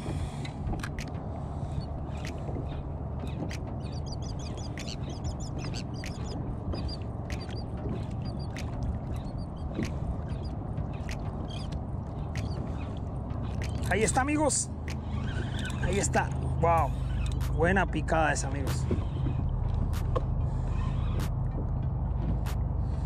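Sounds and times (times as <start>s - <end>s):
water lapping against kayak hull: 0.0s - 17.6s
wind rumbling on microphone: 0.0s - 23.0s
short high squeaks: 15.0s - 16.1s.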